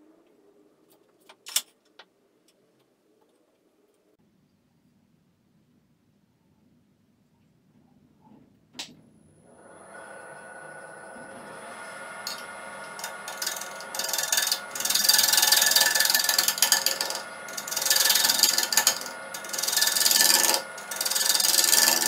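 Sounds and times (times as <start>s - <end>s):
wood lathe humming: 9.5s - 22.0s
gouge cutting wood with hissing: 11.3s - 22.0s.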